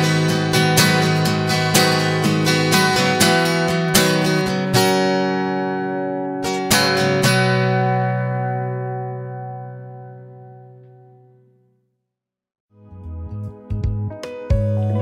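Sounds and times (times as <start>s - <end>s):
acoustic guitar strumming: 0.0s - 11.5s.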